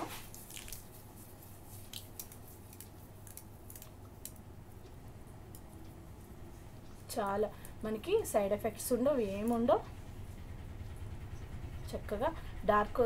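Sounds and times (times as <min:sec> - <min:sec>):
gritty scratching on skin: 0:00.0 - 0:03.9
low steady hum: 0:00.0 - 0:13.0.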